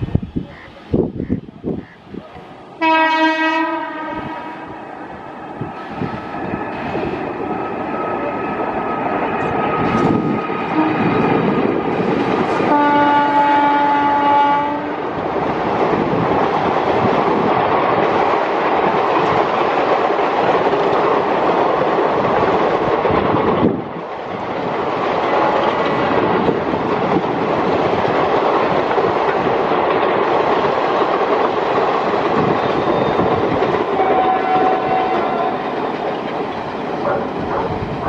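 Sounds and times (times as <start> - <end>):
locomotive air horn blasts: 2.8 - 4.8, 10.7 - 11.2, 12.7 - 15.0, 34.0 - 35.8
train wheel clatter on rails: 5.6 - 38.0.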